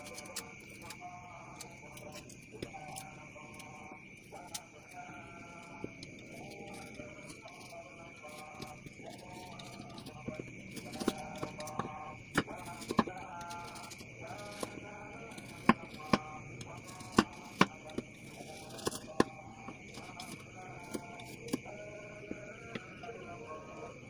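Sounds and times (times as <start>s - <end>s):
knife chopping on wooden board: 15.4s - 16.3s, 16.9s - 21.6s.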